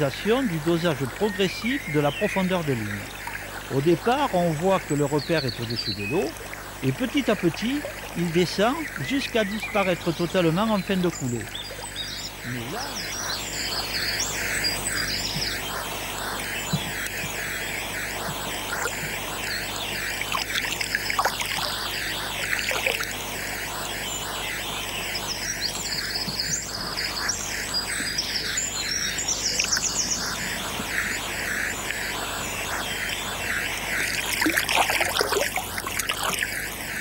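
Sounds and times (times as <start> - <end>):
birds chirping: 0.0 - 37.0
river water running: 0.0 - 37.0
fish splashing at surface: 34.1 - 36.6.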